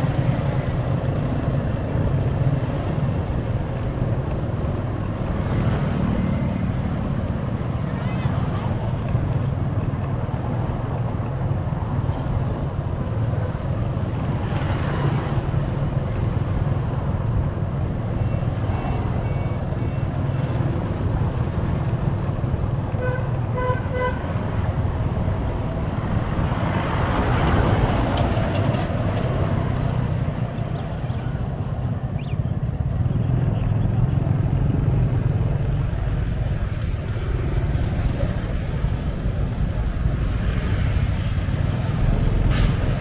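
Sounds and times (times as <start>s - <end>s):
road traffic rumble: 0.0s - 43.0s
vehicle horn beeps: 18.8s - 20.1s.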